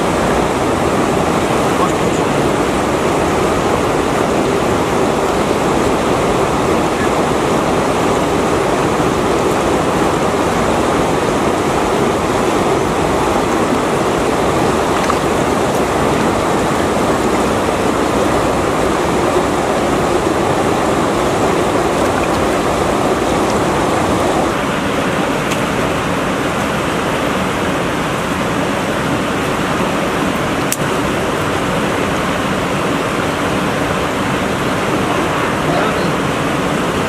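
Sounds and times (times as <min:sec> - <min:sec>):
flowing river water: 0:00.0 - 0:37.0.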